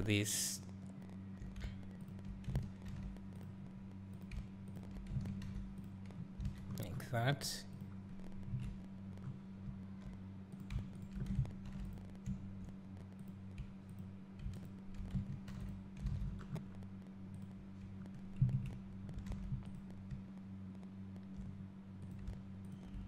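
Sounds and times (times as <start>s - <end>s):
steady low hum: 0.0s - 23.0s
keyboard and mouse clicking: 4.1s - 7.0s, 10.0s - 16.6s.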